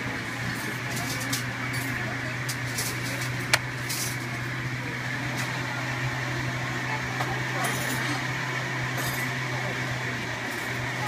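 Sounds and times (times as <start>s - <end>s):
ceiling fan motor hum: 0.0s - 11.0s.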